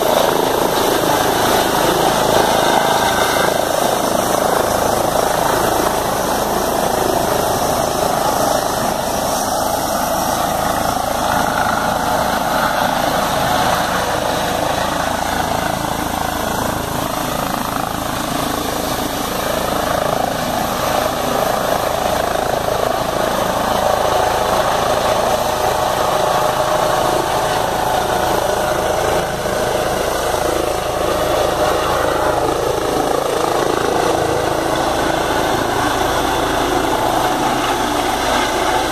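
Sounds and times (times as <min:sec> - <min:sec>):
helicopter turbines and rotor: 0:00.0 - 0:38.9.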